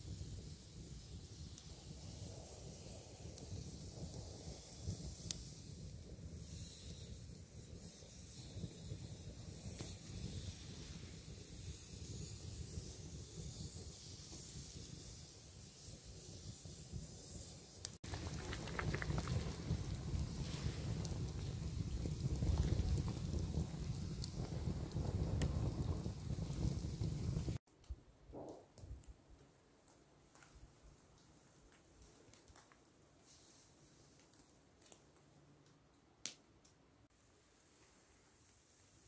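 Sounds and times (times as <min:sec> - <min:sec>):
low outdoor rumble: 0:18.0 - 0:27.6.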